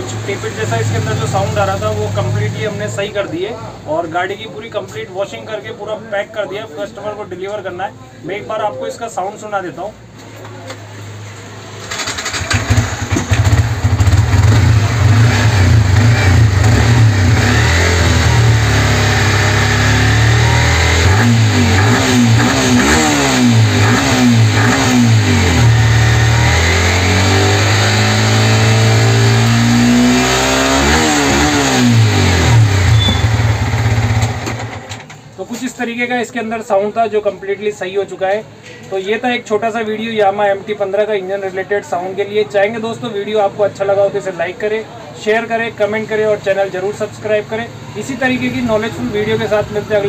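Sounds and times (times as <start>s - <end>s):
motorcycle engine revving: 11.6s - 35.0s.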